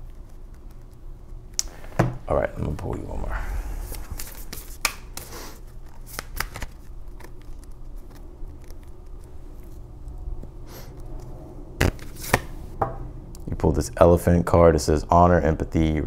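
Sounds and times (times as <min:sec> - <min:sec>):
faint low hum: 0:00.0 - 0:16.0
cards shuffled by hand: 0:03.8 - 0:09.8, 0:11.8 - 0:12.6.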